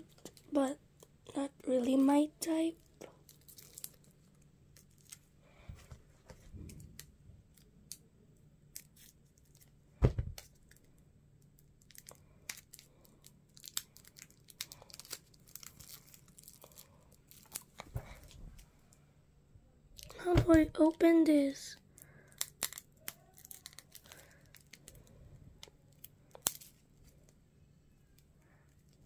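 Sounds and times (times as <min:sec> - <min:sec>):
packaging crinkling: 0:02.8 - 0:05.3, 0:11.6 - 0:18.4, 0:22.0 - 0:27.2.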